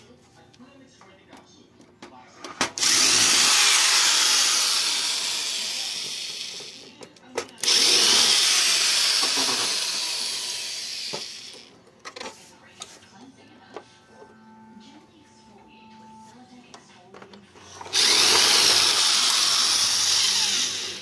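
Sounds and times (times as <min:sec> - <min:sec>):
power tool motor running: 0:02.8 - 0:06.8, 0:07.6 - 0:11.7, 0:17.8 - 0:21.0.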